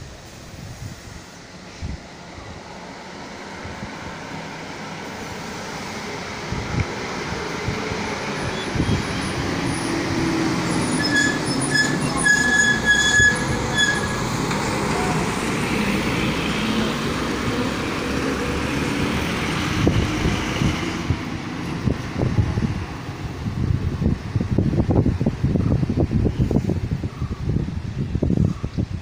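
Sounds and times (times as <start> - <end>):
bus diesel engine passing: 0.2 - 28.1
brakes squealing: 8.3 - 18.3.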